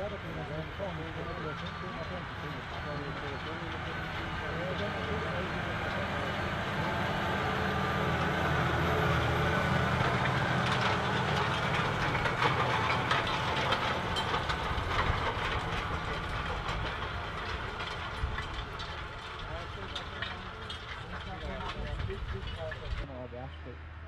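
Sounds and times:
cultivator tines rattling: 0:00.0 - 0:23.1
tractor diesel engine drone: 0:00.0 - 0:24.0.

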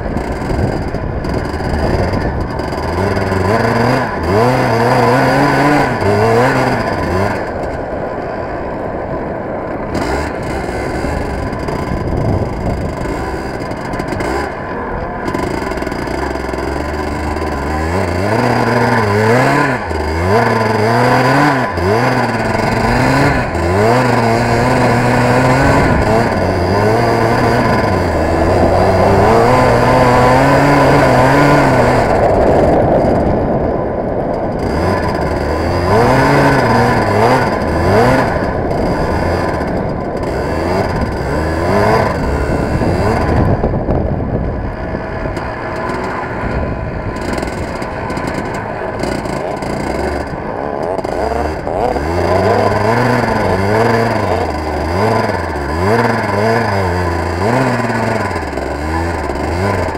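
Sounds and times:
kart engine revving: 0:00.0 - 0:59.9.

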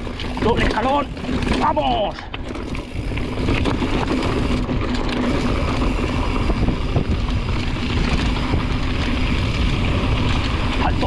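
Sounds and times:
tyres rumbling over dirt: 0:00.0 - 0:11.0
freewheel ratchet buzzing: 0:02.4 - 0:10.6.

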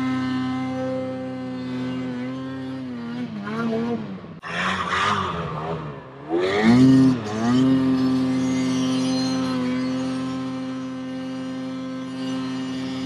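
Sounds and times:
snowmobile engine revving: 0:00.0 - 0:13.0.

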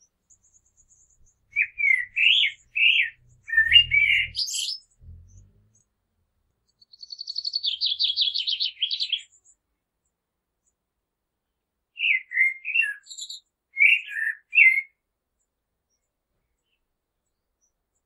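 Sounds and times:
blackbird singing: 0:00.0 - 0:05.9, 0:06.6 - 0:09.6, 0:12.0 - 0:15.0.

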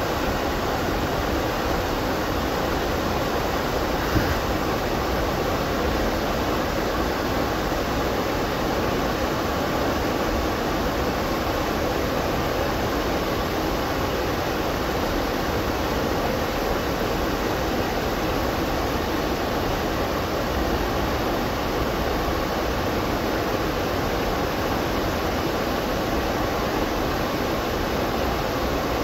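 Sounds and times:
water rushing over dam spillway: 0:00.0 - 0:29.0.

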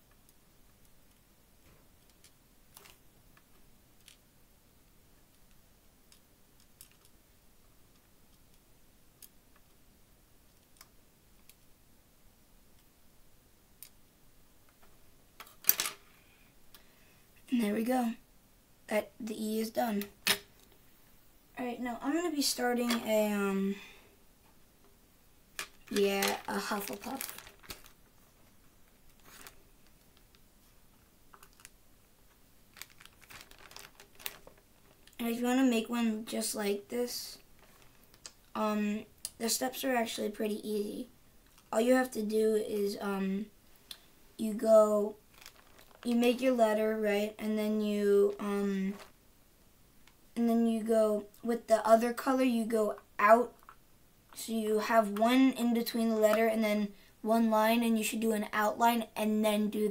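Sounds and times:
small plastic clicks: 0:05.3 - 0:07.2, 0:09.2 - 0:09.8
plastic beads clicking: 0:06.1 - 0:07.2, 0:25.6 - 0:28.0, 0:32.7 - 0:35.2.

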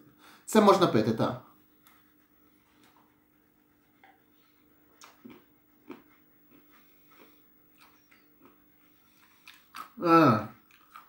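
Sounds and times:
faint steady hum: 0:00.0 - 0:11.0
man gulping and lip smacking: 0:05.0 - 0:08.6, 0:09.2 - 0:11.0.

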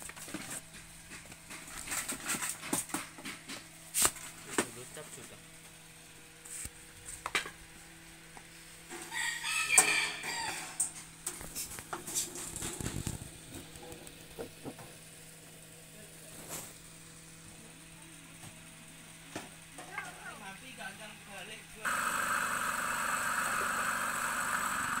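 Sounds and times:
rooster crowing: 0:09.0 - 0:10.8
faint pump motor hum: 0:11.1 - 0:25.0.

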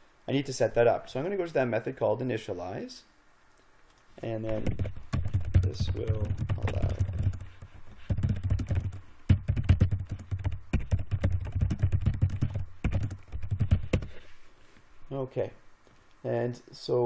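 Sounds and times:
typing on a computer keyboard: 0:04.5 - 0:14.1.

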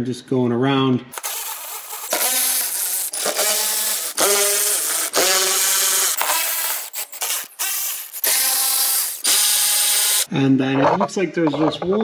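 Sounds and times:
electric ratchet motor whining: 0:01.1 - 0:10.3.

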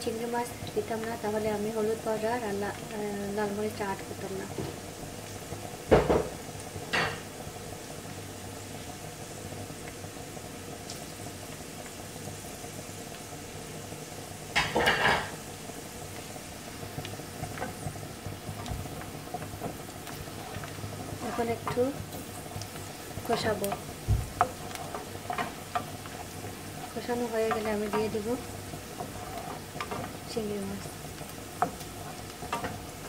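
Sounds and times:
onions sizzling in oil: 0:00.0 - 0:33.0
wooden spatula stirring: 0:16.8 - 0:33.0.

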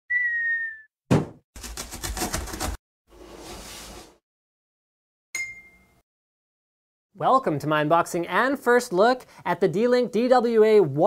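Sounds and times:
falling whistle: 0:00.1 - 0:00.9
ringing ding: 0:05.4 - 0:06.0.

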